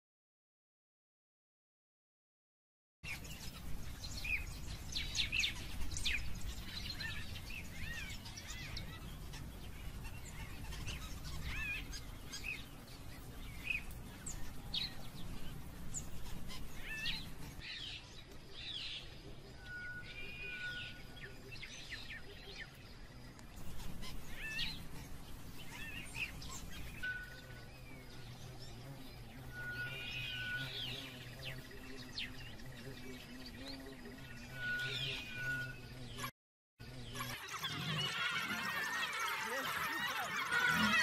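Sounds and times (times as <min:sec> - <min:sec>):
high bird-like chirping: 0:03.0 - 0:18.1, 0:19.5 - 0:22.8, 0:23.6 - 0:36.3
whistle-like tone: 0:19.6 - 0:21.0, 0:27.0 - 0:27.6, 0:29.5 - 0:30.8, 0:34.5 - 0:35.8.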